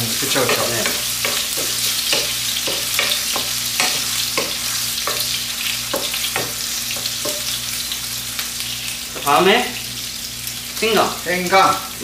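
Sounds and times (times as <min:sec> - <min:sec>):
pork sizzling in fat: 0:00.0 - 0:12.0
utensil scraping and knocking pan: 0:00.3 - 0:07.6.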